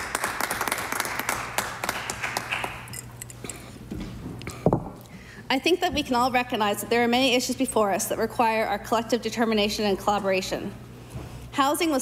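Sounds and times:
scattered applause: 0:00.0 - 0:03.0.

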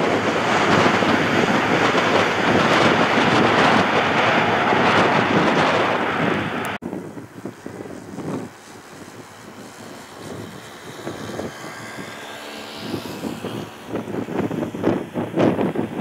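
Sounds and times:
airliner passing: 0:00.0 - 0:16.0
jet engine whine: 0:00.0 - 0:16.0
wind buffeting microphone: 0:00.0 - 0:16.0.

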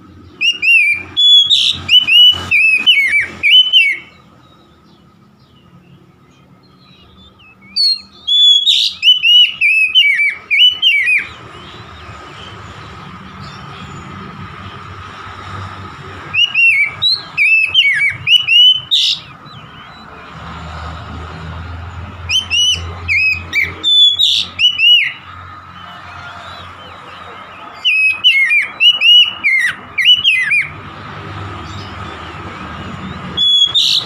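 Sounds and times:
bird singing whistled phrases: 0:00.3 - 0:04.8, 0:06.8 - 0:11.4, 0:16.3 - 0:20.0, 0:22.2 - 0:25.2, 0:27.7 - 0:30.8, 0:33.0 - 0:34.0.

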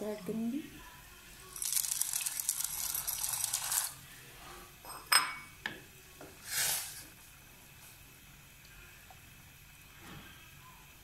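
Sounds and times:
dry pasta clattering into pan: 0:01.6 - 0:04.0.

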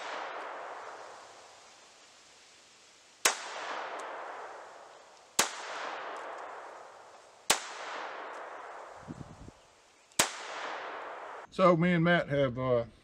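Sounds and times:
pistol shots with echo: 0:03.2 - 0:06.9, 0:07.5 - 0:09.0, 0:10.2 - 0:11.5.

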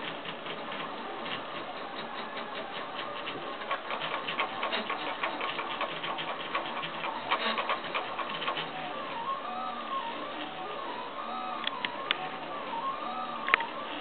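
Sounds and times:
printer ticking and clicking: 0:00.0 - 0:09.3.

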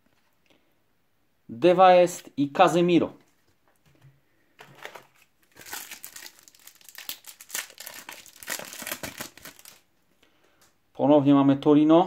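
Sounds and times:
foil card pack crinkling and tearing: 0:04.6 - 0:09.8.

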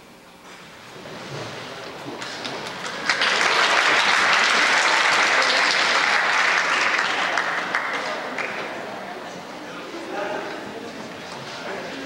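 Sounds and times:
crowd applauding: 0:02.2 - 0:09.1.

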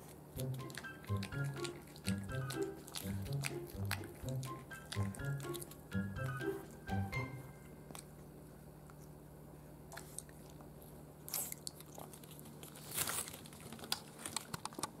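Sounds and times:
puppy chewing food: 0:00.0 - 0:15.0.

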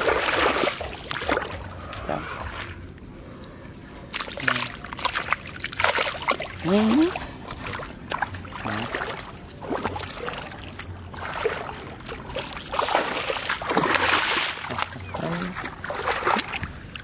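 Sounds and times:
hands splashing in muddy water: 0:04.1 - 0:17.0.

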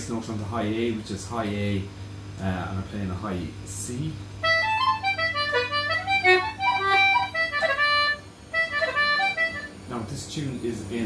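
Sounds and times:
concertina playing reel melody: 0:04.4 - 0:09.8.

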